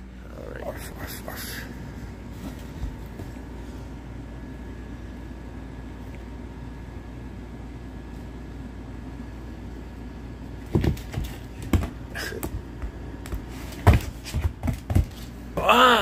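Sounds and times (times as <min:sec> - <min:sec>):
low steady hum: 0:00.0 - 0:16.0
animal thumping on floor: 0:10.6 - 0:15.3.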